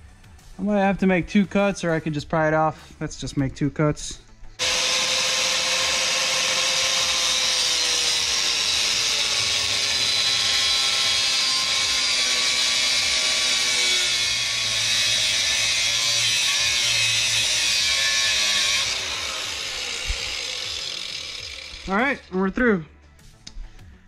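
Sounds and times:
angle grinder cutting metal: 0:04.6 - 0:22.3.

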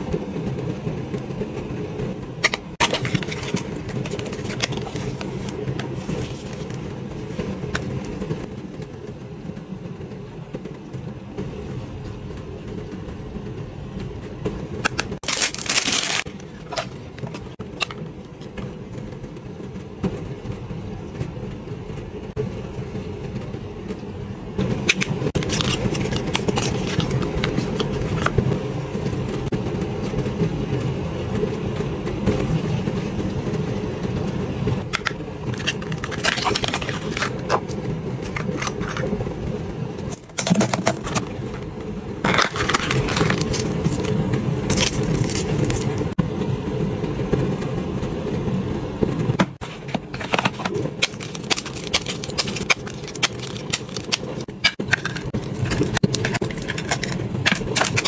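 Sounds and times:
steady low rumble: 0:00.0 - 0:58.0
packaging crinkling and clicking: 0:02.4 - 0:05.6, 0:14.8 - 0:18.0, 0:24.8 - 0:28.4, 0:34.9 - 0:39.2, 0:40.1 - 0:41.6, 0:42.2 - 0:46.0, 0:49.9 - 0:58.0.

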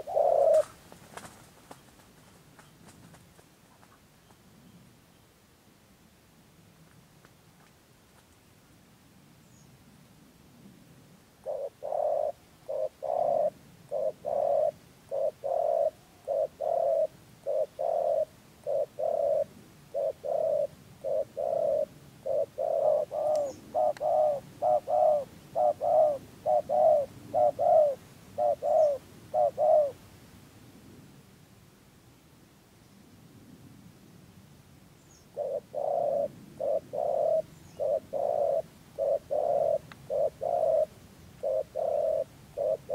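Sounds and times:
dove cooing: 0:00.0 - 0:01.4, 0:11.4 - 0:30.0, 0:35.3 - 0:42.9.

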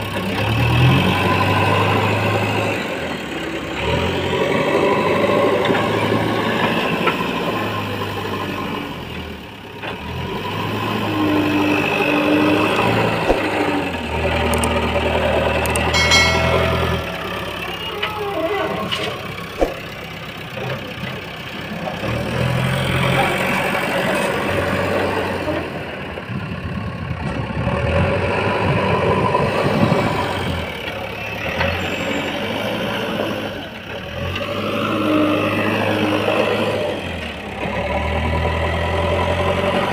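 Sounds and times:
backhoe diesel engine running: 0:00.0 - 0:39.9.

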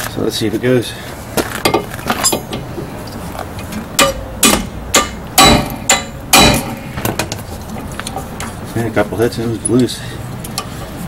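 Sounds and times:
hammer hitting metal screwdriver: 0:04.0 - 0:06.8.

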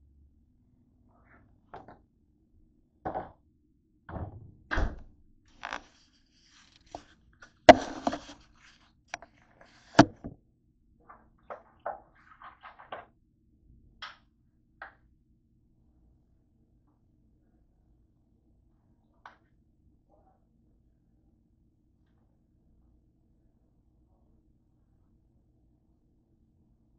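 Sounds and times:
objects knocking on hard tabletop: 0:03.1 - 0:03.4, 0:07.7 - 0:08.4, 0:09.9 - 0:10.4.

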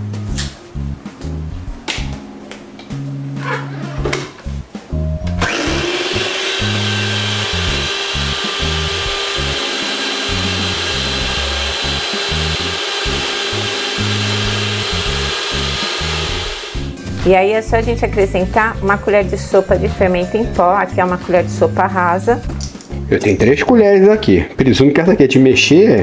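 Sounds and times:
beaters mixing batter: 0:05.3 - 0:16.9
stand mixer motor whine: 0:05.4 - 0:16.9.

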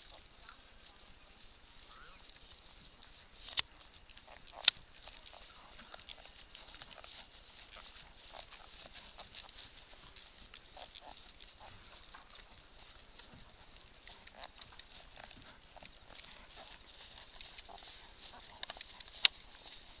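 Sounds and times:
horse hoofbeats on grass: 0:00.0 - 0:20.0
saddle tack creaking: 0:01.8 - 0:20.0.

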